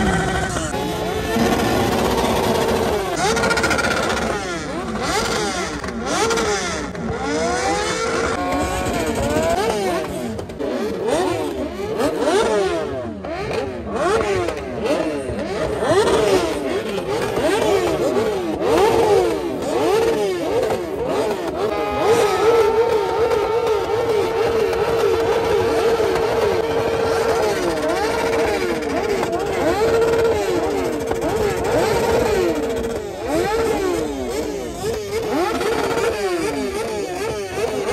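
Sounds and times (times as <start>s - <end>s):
steady engine note: 0.0s - 5.0s
motorcycle engines revving: 0.0s - 37.9s.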